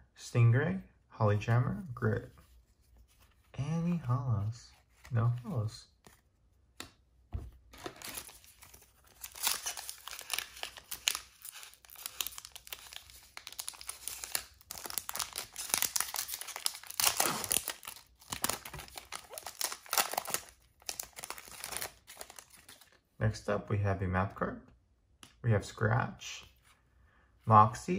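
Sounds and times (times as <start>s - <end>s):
foil wrapper crinkling and tearing: 7.8s - 22.9s.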